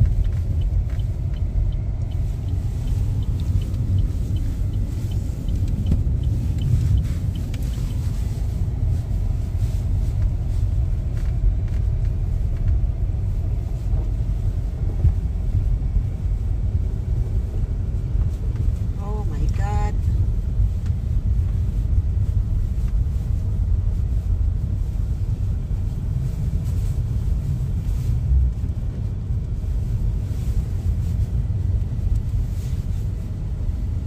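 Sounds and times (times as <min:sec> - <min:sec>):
faint light ticking: 0:00.0 - 0:08.2
car driving rumble: 0:00.0 - 0:34.0.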